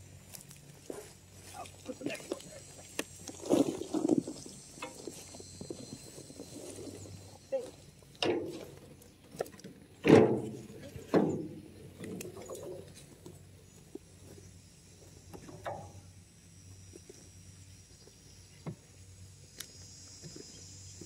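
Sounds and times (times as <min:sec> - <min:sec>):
wheelbarrow clanking and rattling: 0:08.2 - 0:13.1.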